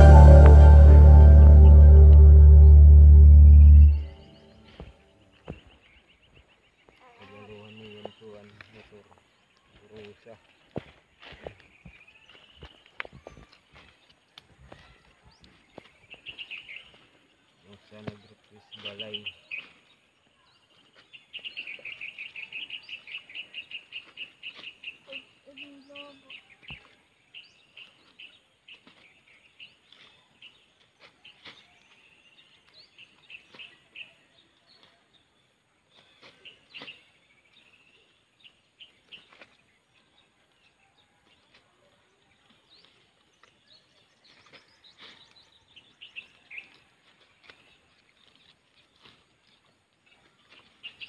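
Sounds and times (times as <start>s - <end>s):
small birds chirping: 3.4s - 51.0s.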